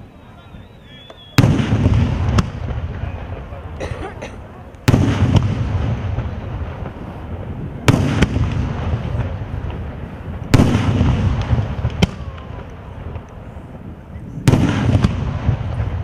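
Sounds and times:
fireworks bursting with rumble: 0.0s - 16.0s
sharp light firework crack: 1.0s - 3.8s, 4.4s - 16.0s.

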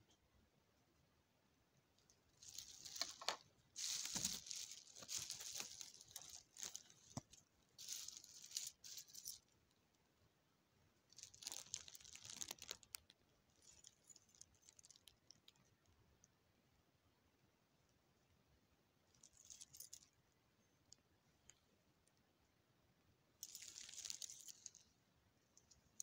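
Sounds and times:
plastic bag crinkling: 2.3s - 9.5s, 11.1s - 15.4s, 23.4s - 24.9s.

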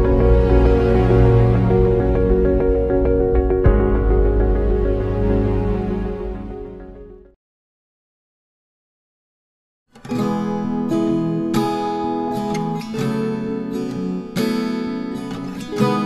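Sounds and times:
strummed acoustic guitar: 9.9s - 16.0s.

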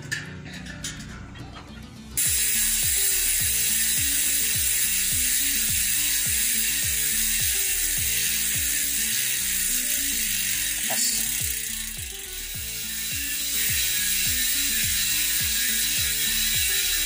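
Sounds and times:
low music beat: 1.8s - 17.0s
bike hub freewheel clicking: 2.2s - 17.0s.

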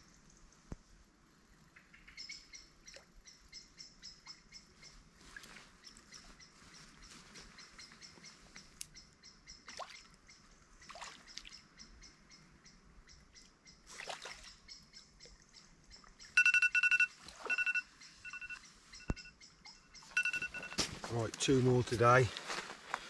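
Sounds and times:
high electronic beeps: 16.4s - 20.9s.

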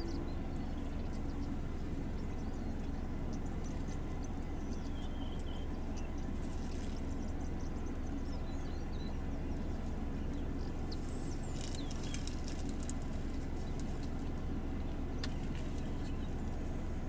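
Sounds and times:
small birds chirping: 0.0s - 17.0s
steady low rumble: 0.0s - 17.0s
twigs snapping and rustling: 6.4s - 7.1s, 11.0s - 14.3s.

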